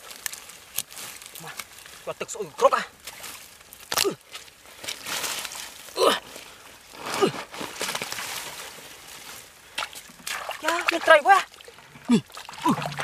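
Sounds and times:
hands splashing in mud: 0:09.8 - 0:11.1.

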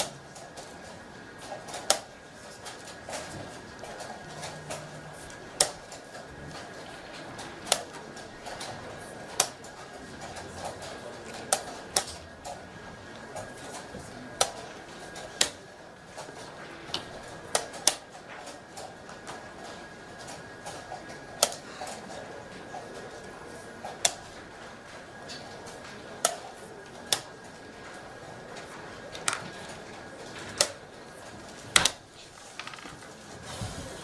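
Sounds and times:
murmur of voices: 0:00.0 - 0:34.0
chess pieces knocking on board: 0:32.6 - 0:33.0.

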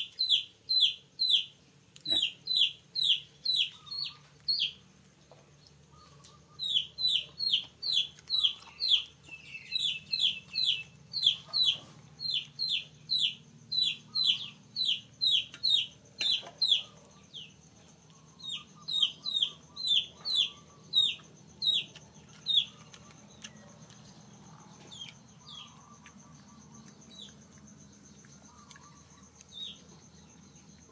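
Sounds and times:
chick peeping: 0:00.0 - 0:01.5, 0:02.1 - 0:04.8, 0:05.9 - 0:17.5, 0:18.2 - 0:23.6.

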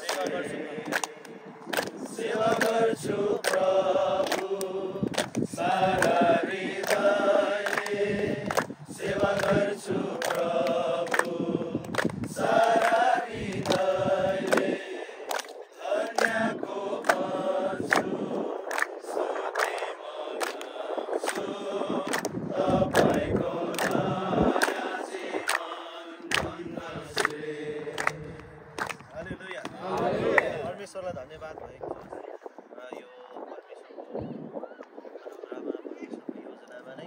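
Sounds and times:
men singing together: 0:00.0 - 0:18.5, 0:19.1 - 0:28.8, 0:29.7 - 0:30.7
hands clapping in time: 0:00.0 - 0:30.5.

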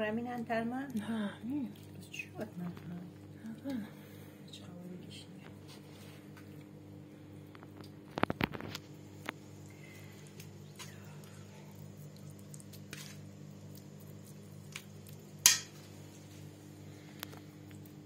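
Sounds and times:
steady low hum: 0:00.0 - 0:18.0
metal bowl and pot clinking: 0:15.4 - 0:15.8.

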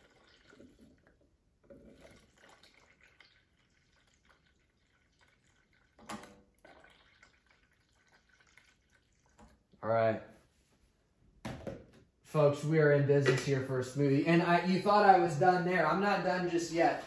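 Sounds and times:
water trickling into plastic jar: 0:00.0 - 0:09.8.

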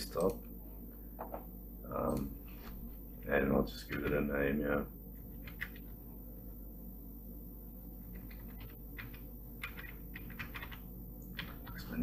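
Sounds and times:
low steady hum: 0:00.0 - 0:12.0
keyboard keystrokes: 0:05.4 - 0:05.8, 0:08.1 - 0:11.9.

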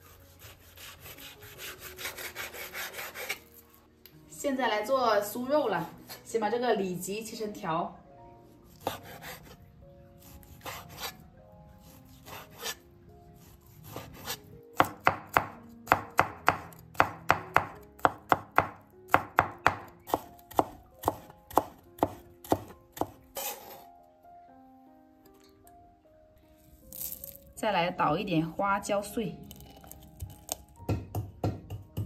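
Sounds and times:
cleaver chopping on wooden board: 0:14.0 - 0:23.5.

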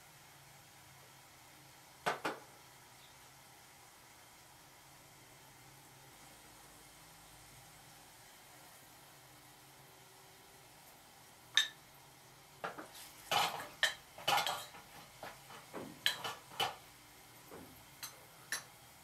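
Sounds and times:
metal spoon scraping pot: 0:13.3 - 0:16.8.

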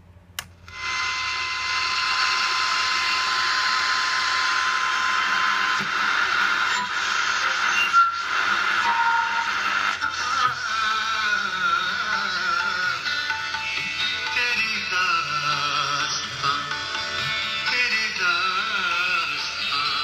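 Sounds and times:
radio tuning whistles: 0:00.7 - 0:10.4
radio static hiss: 0:00.8 - 0:12.9.

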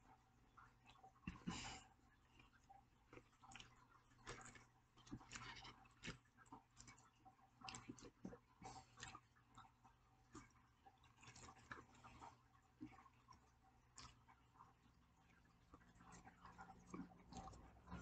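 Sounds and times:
chewing crunchy food: 0:00.0 - 0:18.0.

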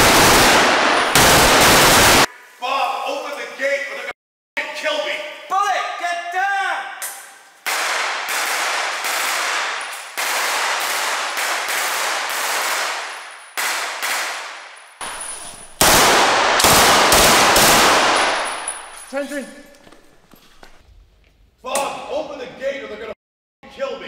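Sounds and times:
rifle shots echoing: 0:00.0 - 0:02.3, 0:07.7 - 0:19.1.

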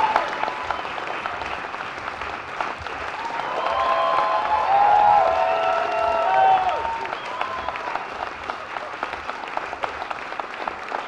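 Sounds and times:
crowd cheering whoops: 0:00.0 - 0:01.4, 0:03.1 - 0:08.9
audience applauding: 0:00.0 - 0:11.0.

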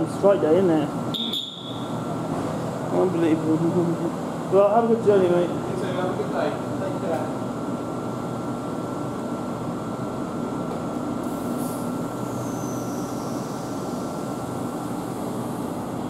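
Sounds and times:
thin high whine: 0:11.3 - 0:15.1.

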